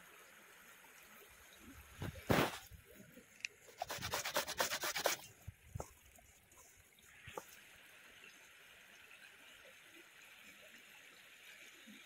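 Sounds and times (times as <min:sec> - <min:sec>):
carrot grated on metal grater: 0:03.8 - 0:05.1.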